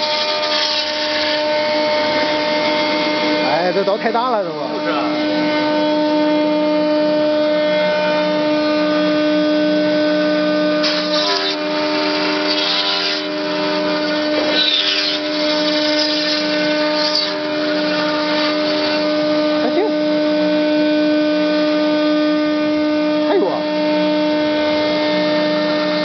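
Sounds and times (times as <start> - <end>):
bit cutting foam: 0.0 - 2.7, 10.3 - 20.4
router spindle whine: 0.0 - 26.0.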